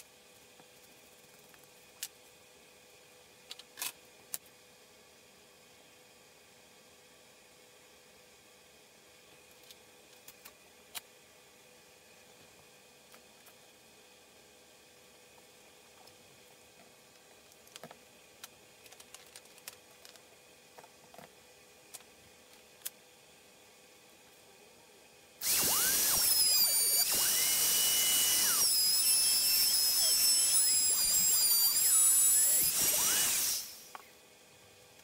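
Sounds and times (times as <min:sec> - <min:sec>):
electric router whining: 0:25.4 - 0:33.9.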